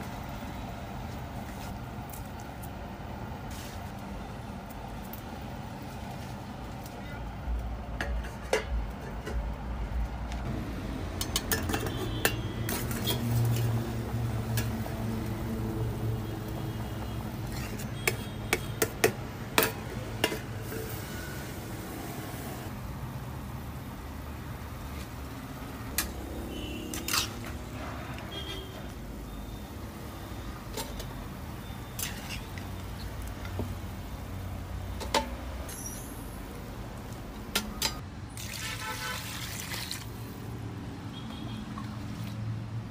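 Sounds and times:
metal cookware clinking: 8.0s - 9.4s, 11.2s - 13.7s.

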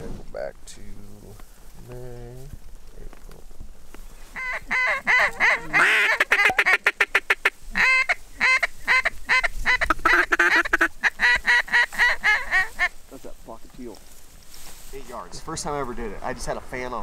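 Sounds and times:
duck call quacks: 4.4s - 12.9s.

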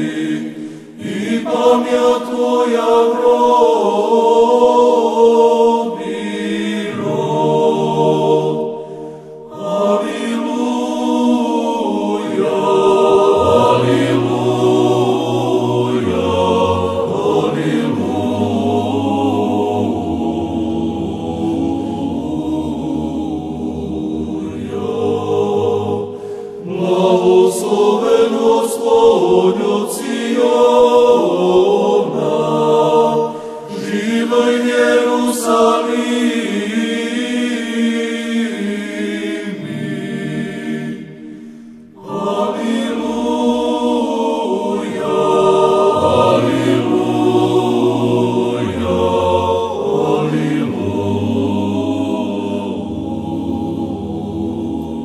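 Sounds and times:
choir chanting: 0.0s - 55.0s
low held drone: 6.8s - 30.6s, 37.7s - 55.0s.

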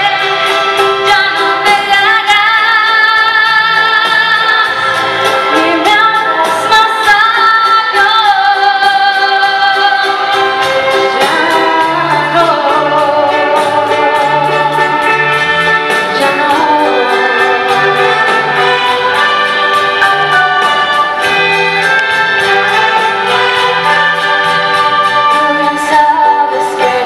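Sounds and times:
symphony orchestra: 0.0s - 27.0s
woman singing a slow ballad: 1.0s - 4.8s, 5.5s - 10.6s, 11.2s - 15.2s, 16.1s - 18.0s, 25.3s - 27.0s.

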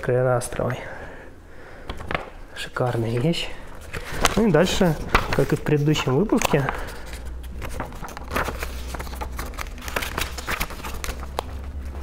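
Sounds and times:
low steady hum: 0.0s - 12.0s
book pages turning: 1.9s - 12.0s.

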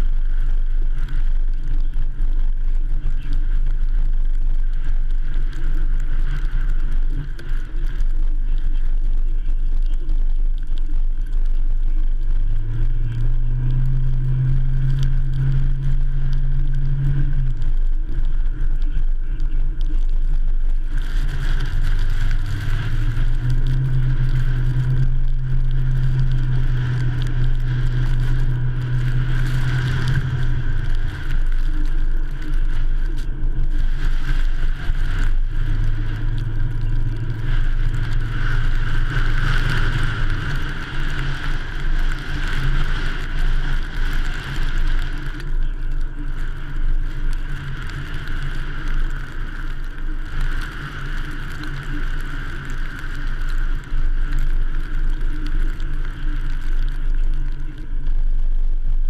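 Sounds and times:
truck engine and tyre rumble: 0.0s - 59.0s.

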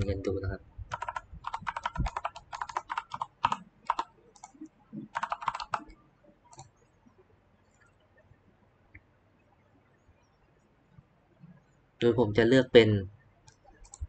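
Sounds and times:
computer keyboard typing: 0.9s - 6.8s, 13.5s - 14.0s.

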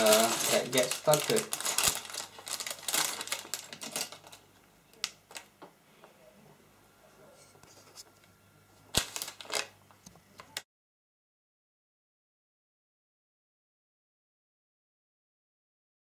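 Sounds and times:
plastic bags crinkling: 0.0s - 5.6s, 8.9s - 9.8s.

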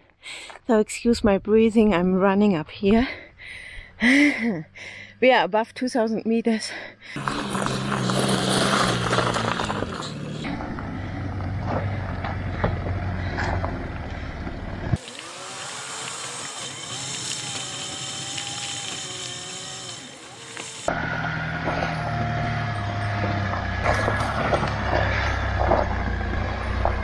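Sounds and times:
diesel engine running: 6.7s - 27.0s
stones crunching under tyres: 7.2s - 15.4s, 16.0s - 27.0s
rising and falling whine: 20.1s - 27.0s.

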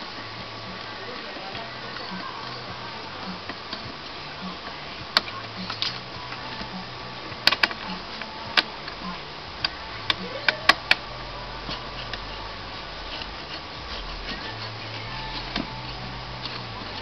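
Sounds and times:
plastic and metal parts clicking: 7.4s - 9.0s, 9.6s - 11.0s.

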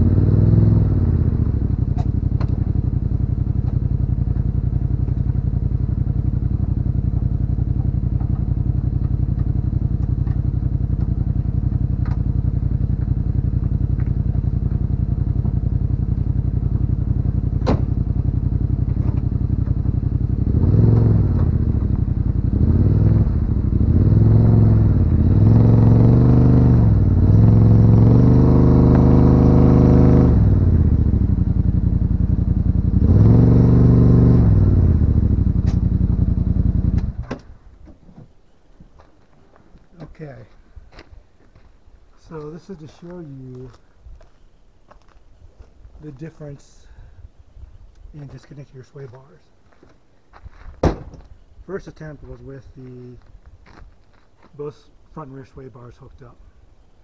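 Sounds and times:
vehicle engine idling and revving: 0.0s - 38.3s.

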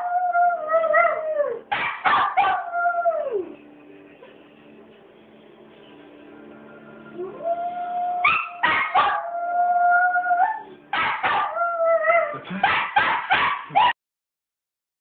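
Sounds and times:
dog howling: 0.0s - 1.6s, 7.2s - 12.4s
dog yipping: 1.7s - 2.6s, 8.2s - 9.2s, 11.0s - 11.6s, 12.6s - 14.0s.

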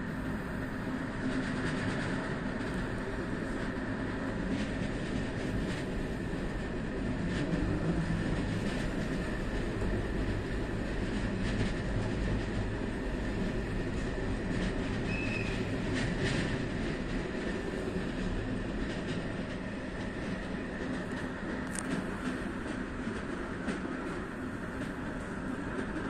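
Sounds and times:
train wheels rumbling on rails: 0.0s - 26.0s
high squeal: 15.0s - 15.7s.

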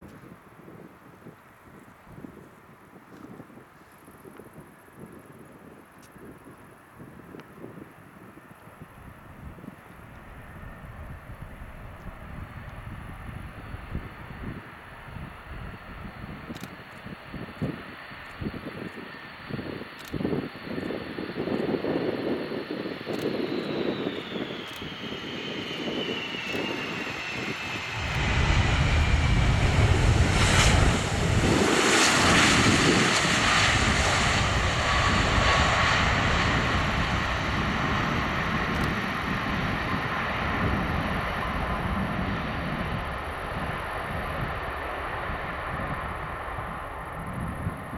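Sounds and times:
jet engines whining: 20.7s - 47.9s
deep jet rumble: 22.7s - 47.9s.

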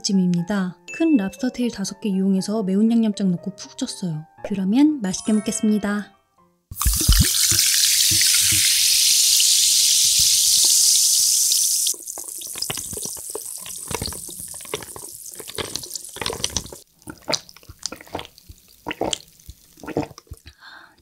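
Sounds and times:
sparkling water pouring fizzing: 6.7s - 16.9s
drink crackling among ice: 11.9s - 20.5s.

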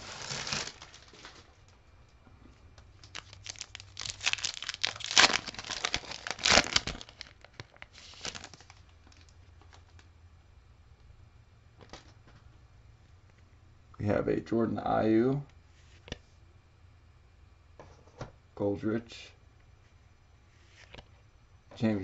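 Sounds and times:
plastic wrapper crinkling and tearing: 0.0s - 1.6s, 3.0s - 10.0s
wrapper rustling: 0.0s - 1.6s, 3.0s - 10.0s.

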